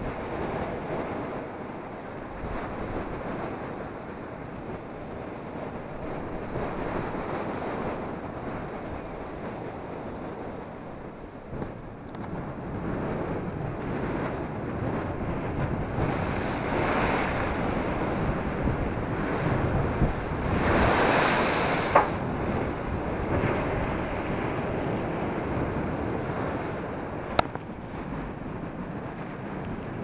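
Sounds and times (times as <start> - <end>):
waves crashing against seawall: 0.0 - 30.0
wind buffeting microphone: 0.0 - 30.0
short sharp knocks: 21.9 - 22.2.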